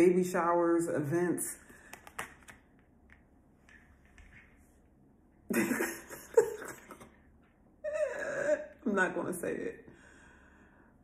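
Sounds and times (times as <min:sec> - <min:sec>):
woman laughing: 0:05.5 - 0:07.1.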